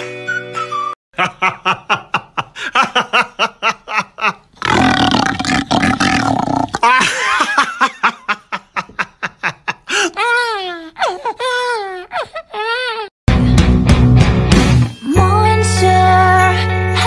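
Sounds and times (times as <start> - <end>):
man laughing: 1.2 - 4.5, 6.8 - 10.2
man roaring into a cardboard tube: 4.6 - 6.9.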